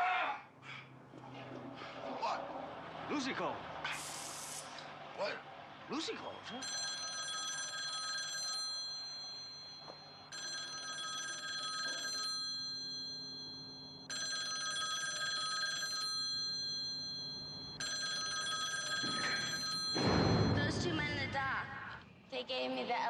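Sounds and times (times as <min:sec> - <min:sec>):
telephone bell ringing: 0:06.3 - 0:20.8.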